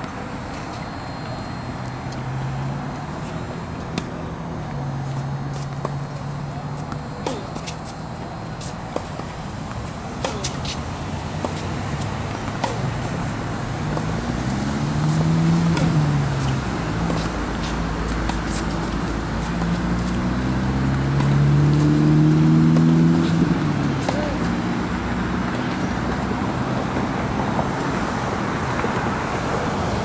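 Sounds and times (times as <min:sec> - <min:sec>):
vehicle engine hum passing: 0:00.0 - 0:30.0
tennis ball hitting strings: 0:06.8 - 0:07.9, 0:08.6 - 0:10.8, 0:11.4 - 0:20.1, 0:22.7 - 0:24.5.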